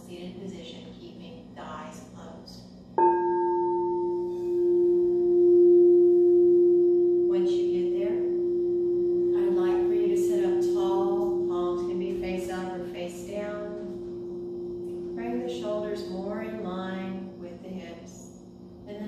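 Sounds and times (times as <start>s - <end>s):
mallet striking singing bowl: 3.0s - 9.4s
singing bowl ringing tone: 3.0s - 19.0s.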